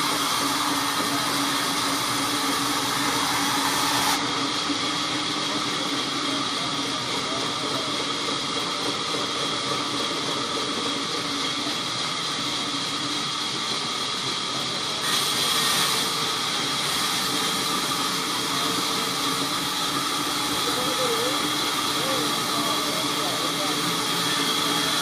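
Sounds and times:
band saw cutting log: 0.0 - 4.6, 15.0 - 25.0.

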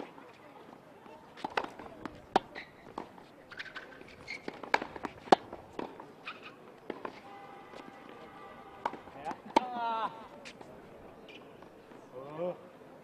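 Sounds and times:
tennis ball bouncing: 1.0 - 8.2, 8.8 - 9.8
tennis ball hitting racket: 1.0 - 8.2, 8.8 - 9.8.

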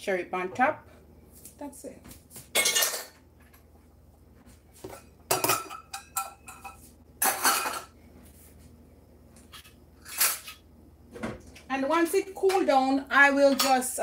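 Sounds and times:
dishes and utensils clattering: 2.5 - 3.5, 4.8 - 8.0, 9.5 - 10.6, 13.4 - 14.0.

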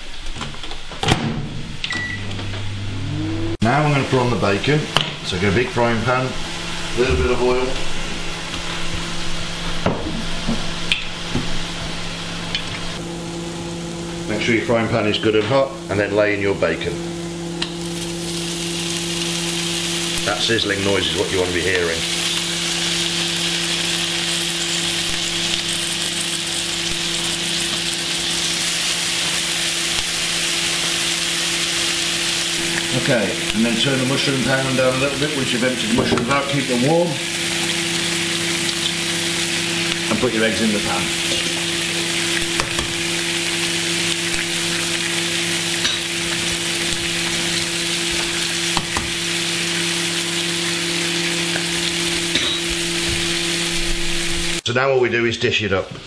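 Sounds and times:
steady low hum: 1.6 - 20.8
bacon sizzling in frying pan: 4.5 - 14.2, 17.2 - 54.6.

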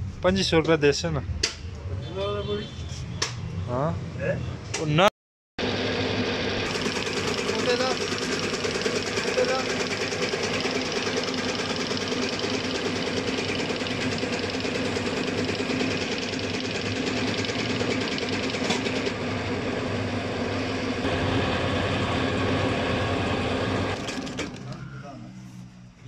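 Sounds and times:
motor hum: 6.0 - 19.6
fast mechanical ticking: 6.7 - 19.1.

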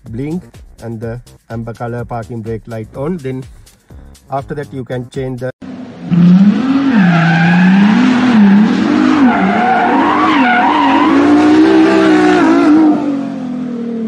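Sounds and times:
sports car engine revving: 5.6 - 14.0
tyres screeching: 6.2 - 12.9.

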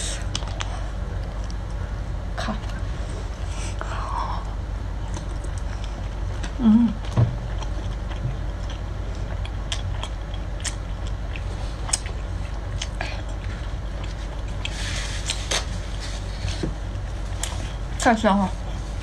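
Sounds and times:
steady low hum: 0.0 - 19.0
wet chewing: 5.0 - 17.8.

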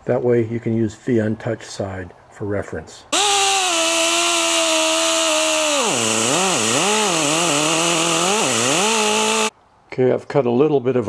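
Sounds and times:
die grinder cutting metal: 3.2 - 9.5.

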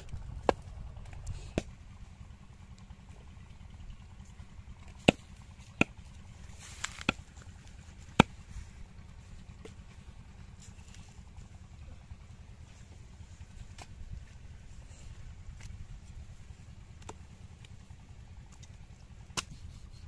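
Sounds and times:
axe chopping through bone on wood: 4.9 - 6.0, 6.8 - 7.3, 8.1 - 8.4.

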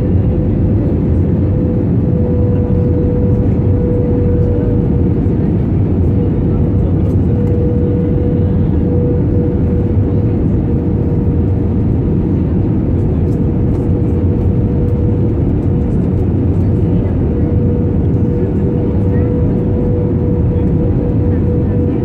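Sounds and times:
aircraft cabin engine roar: 0.0 - 22.0.

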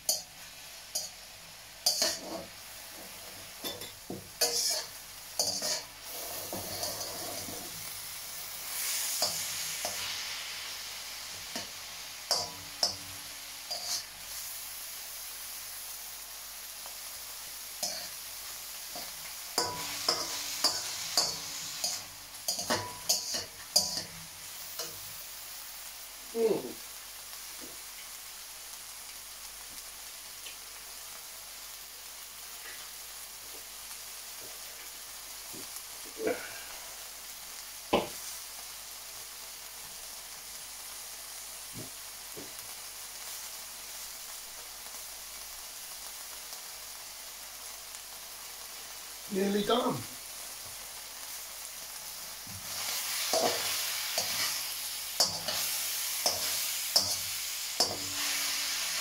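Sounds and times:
stir fry sizzling in wok: 0.0 - 59.0
metal spatula scraping wok: 1.8 - 7.9, 13.7 - 14.1, 19.0 - 24.1, 52.7 - 59.0.

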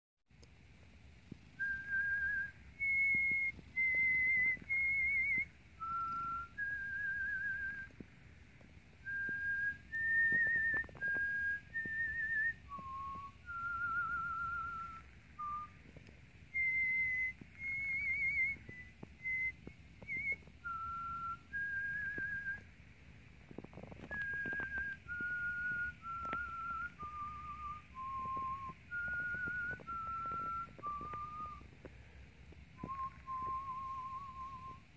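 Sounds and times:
person whistling a slow tune: 1.6 - 8.1, 9.0 - 22.8, 23.6 - 32.2, 32.8 - 34.9.

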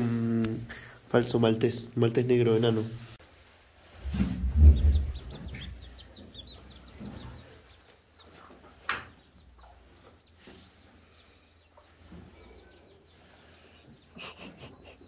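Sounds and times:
chickens peeping and clucking: 3.4 - 15.0.

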